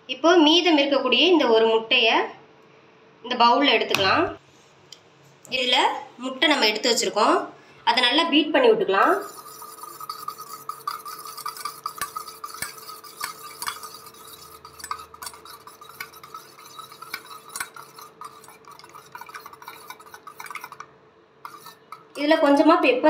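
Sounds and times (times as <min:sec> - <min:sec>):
egg beaten in a bowl: 0:09.0 - 0:22.6.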